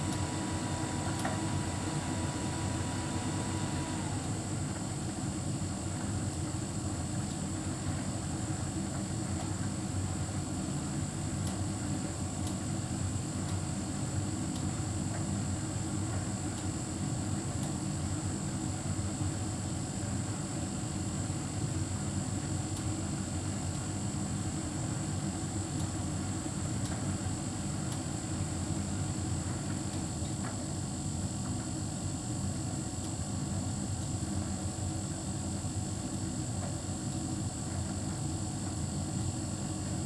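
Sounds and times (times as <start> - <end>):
tumble dryer drone: 0.0 - 5.1.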